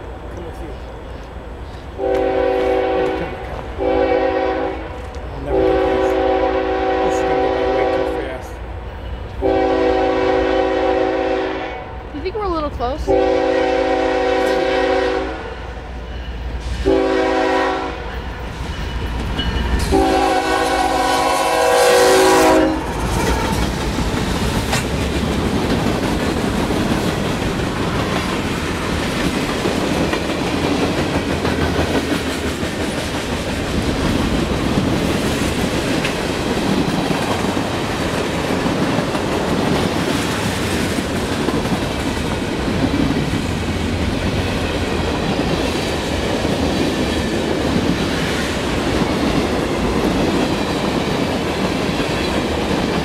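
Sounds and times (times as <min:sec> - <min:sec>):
locomotive air horn: 0:02.0 - 0:08.2, 0:09.4 - 0:12.0, 0:13.1 - 0:15.6, 0:16.7 - 0:18.1, 0:19.9 - 0:23.4.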